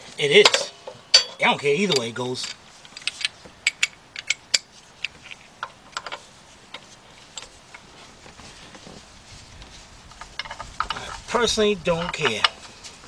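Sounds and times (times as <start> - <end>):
metal clinks: 0.4 - 4.7.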